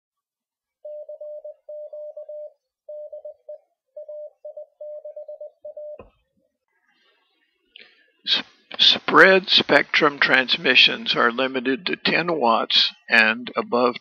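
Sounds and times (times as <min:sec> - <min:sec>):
morse code beeps: 0:00.8 - 0:06.1.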